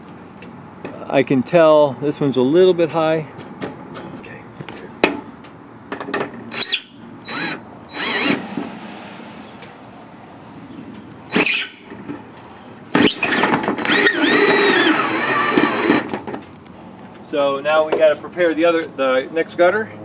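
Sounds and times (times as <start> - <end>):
cordless drill driving screws: 6.5 - 8.6, 11.3 - 11.8, 13.0 - 16.2.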